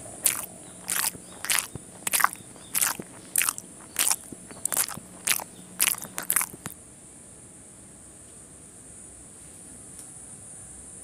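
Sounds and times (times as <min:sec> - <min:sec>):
crunchy chewing: 0:00.0 - 0:06.8.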